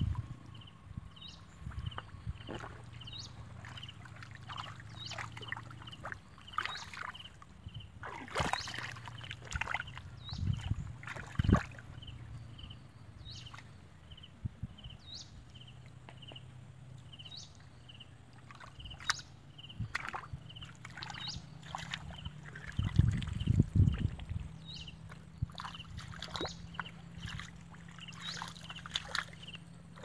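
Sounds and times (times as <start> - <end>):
faint high chirp: 0.5 - 9.4, 24.7 - 29.6
hands sloshing in muddy water: 1.5 - 12.2, 16.9 - 30.0
short splashes: 1.6 - 12.2, 18.3 - 30.0.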